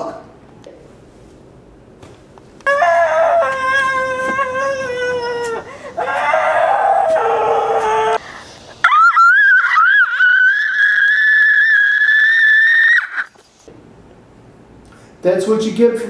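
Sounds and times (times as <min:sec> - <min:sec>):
person screaming: 0:02.6 - 0:08.2, 0:08.8 - 0:13.3.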